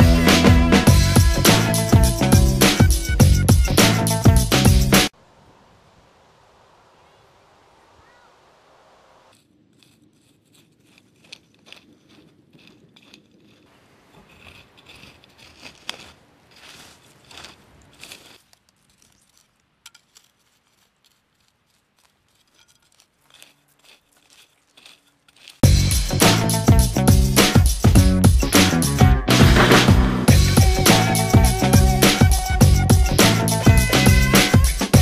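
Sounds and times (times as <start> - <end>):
sickle scraping through dry soil: 9.3 - 27.6.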